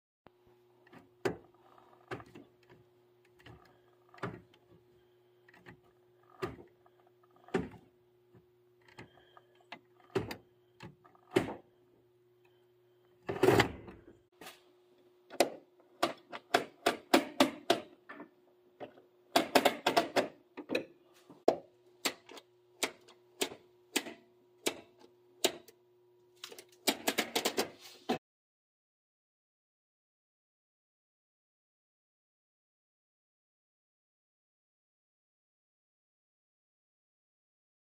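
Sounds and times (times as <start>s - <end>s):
faint steady hum: 0.3s - 16.4s.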